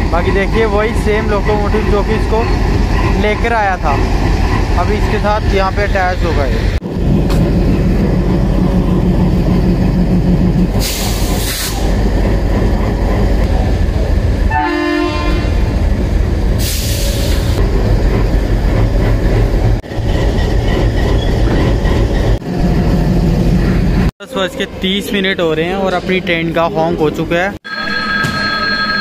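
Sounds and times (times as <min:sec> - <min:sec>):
diesel locomotive idling: 0:00.0 - 0:24.1
locomotive horn blast: 0:14.5 - 0:15.7.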